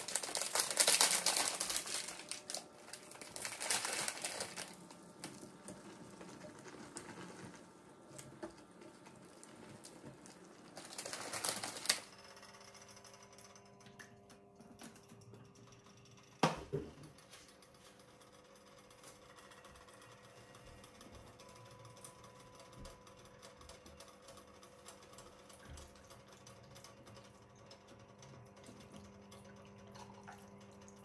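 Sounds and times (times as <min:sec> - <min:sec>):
boiling water bubbling: 0:00.0 - 0:12.0, 0:25.3 - 0:31.0.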